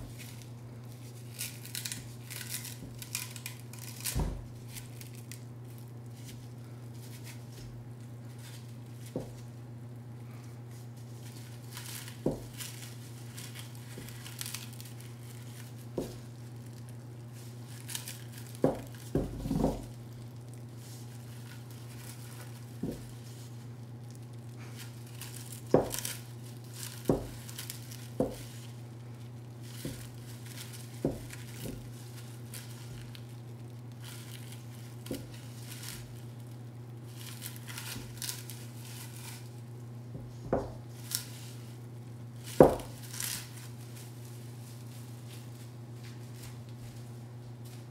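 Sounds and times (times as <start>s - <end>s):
crinkling: 0.0s - 47.9s
steady low hum: 0.0s - 47.9s.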